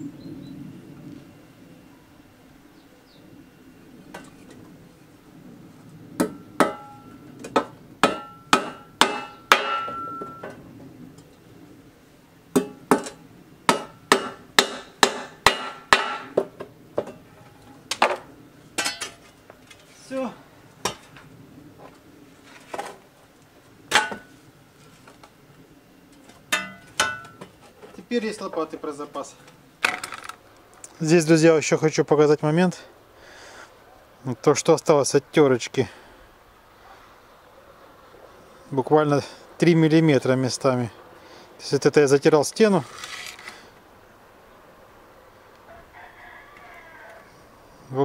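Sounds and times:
hammer striking metal: 0:06.2 - 0:10.5, 0:12.6 - 0:16.4, 0:26.5 - 0:27.4.

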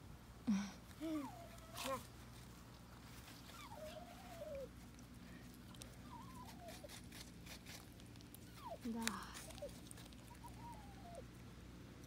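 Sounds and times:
dog whining: 0:01.1 - 0:02.1, 0:03.4 - 0:04.8, 0:05.7 - 0:07.2, 0:08.4 - 0:11.3.

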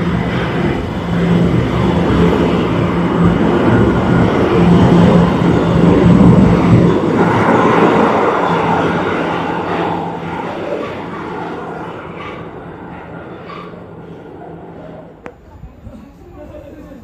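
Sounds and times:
low rumble: 0:00.0 - 0:15.9
subway train wheel and motor noise: 0:00.0 - 0:17.0.

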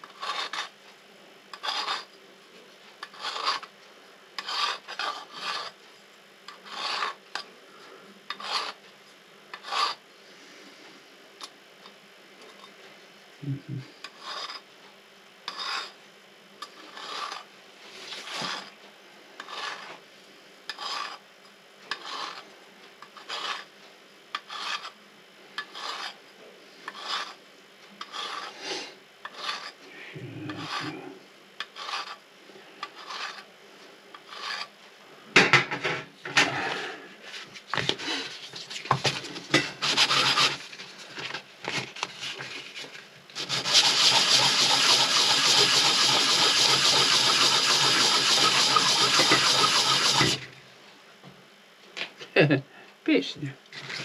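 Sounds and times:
hand file rasping on metal: 0:00.0 - 0:00.7, 0:01.6 - 0:02.1, 0:03.0 - 0:03.7, 0:04.4 - 0:05.8, 0:06.6 - 0:07.2, 0:08.3 - 0:08.8, 0:09.5 - 0:10.0, 0:14.1 - 0:14.6, 0:15.5 - 0:15.9, 0:16.8 - 0:17.4, 0:19.4 - 0:19.9, 0:20.7 - 0:21.2, 0:21.9 - 0:22.4, 0:23.2 - 0:23.7, 0:24.4 - 0:24.9, 0:25.6 - 0:26.2, 0:26.9 - 0:27.4, 0:28.0 - 0:28.5, 0:29.3 - 0:29.8, 0:30.5 - 0:31.0, 0:31.7 - 0:32.2, 0:32.9 - 0:33.4, 0:34.3 - 0:34.7, 0:39.8 - 0:40.6, 0:43.4 - 0:50.4.

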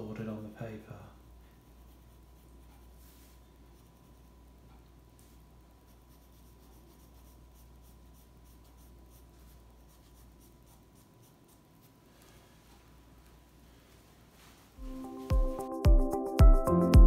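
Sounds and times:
pencil scratching on paper: 0:01.6 - 0:12.1.

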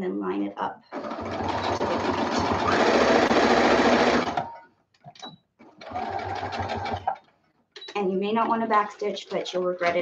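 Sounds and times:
sewing machine stitching: 0:00.9 - 0:04.6, 0:05.2 - 0:10.0.

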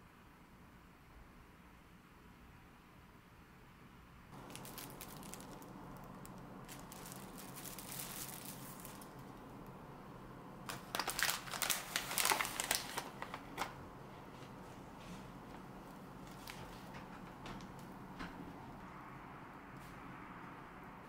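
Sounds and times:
plastic bag crinkling: 0:04.4 - 0:09.8, 0:10.6 - 0:13.8, 0:16.2 - 0:16.9.

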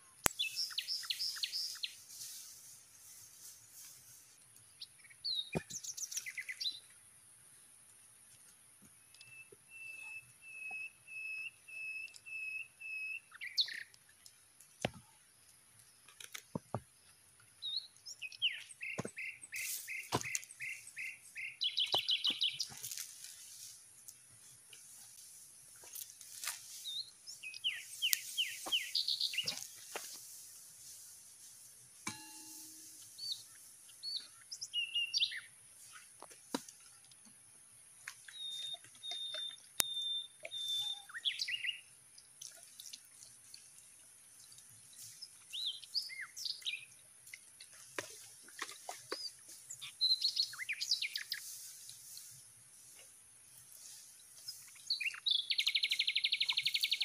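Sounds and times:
steady high-pitched hiss: 0:00.0 - 0:38.7, 0:43.4 - 0:57.0
birds chirping and whistling: 0:00.3 - 0:02.0, 0:09.2 - 0:13.9, 0:17.6 - 0:23.0, 0:26.7 - 0:29.8, 0:32.1 - 0:35.5, 0:38.3 - 0:41.8, 0:49.0 - 0:51.6, 0:54.4 - 0:57.0
bird trill: 0:17.6 - 0:22.8, 0:32.1 - 0:35.5, 0:38.3 - 0:41.8.

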